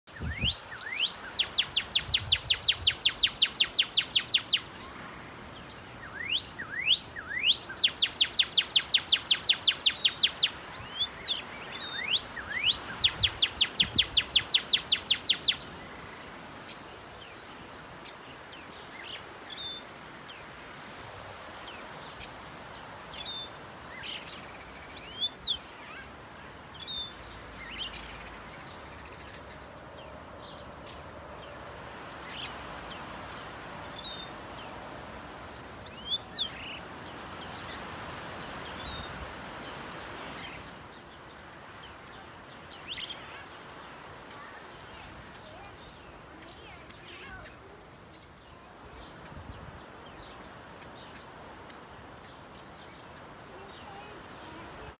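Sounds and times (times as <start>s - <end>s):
bird whistled song: 0.1s - 5.0s, 5.7s - 16.4s, 23.2s - 26.2s, 35.8s - 36.8s.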